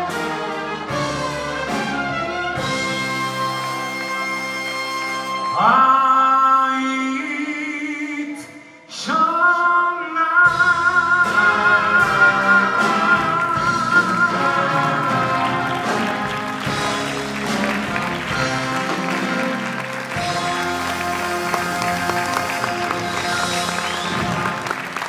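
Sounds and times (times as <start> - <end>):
big band playing: 0.0 - 7.7, 9.0 - 25.0
man singing with vibrato: 5.5 - 16.0.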